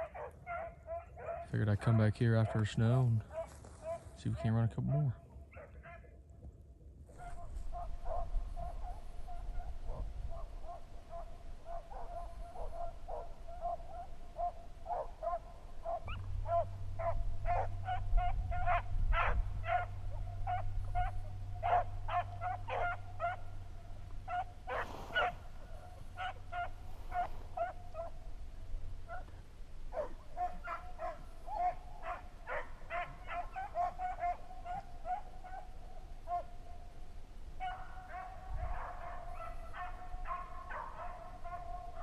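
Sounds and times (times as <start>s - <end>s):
dogs baying: 0.0s - 6.2s, 7.1s - 37.0s, 37.6s - 42.0s
low rumble: 7.4s - 33.3s.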